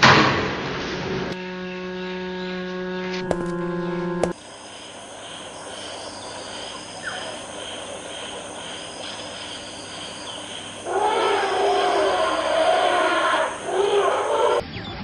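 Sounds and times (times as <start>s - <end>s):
insects chirping: 3.2s - 14.6s.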